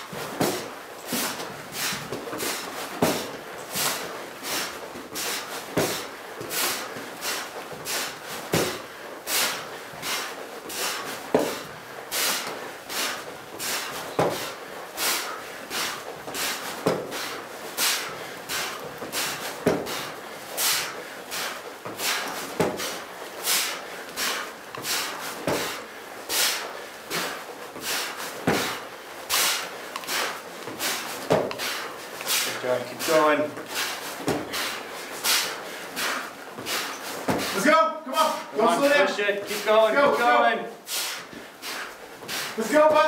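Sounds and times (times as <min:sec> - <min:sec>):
heavy thuds on rubber floor: 0:00.0 - 0:04.0, 0:05.1 - 0:06.6, 0:07.7 - 0:08.9, 0:11.3 - 0:11.7, 0:13.6 - 0:14.6, 0:16.3 - 0:17.3, 0:18.5 - 0:20.1, 0:21.8 - 0:23.0, 0:24.8 - 0:25.8, 0:27.2 - 0:28.8, 0:30.7 - 0:31.6, 0:33.6 - 0:34.7, 0:36.6 - 0:37.6.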